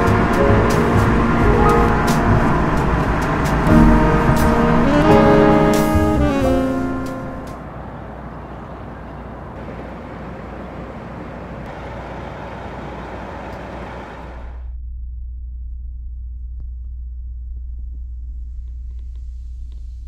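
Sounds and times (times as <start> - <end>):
outdoor rushing noise: 0.0 - 14.7.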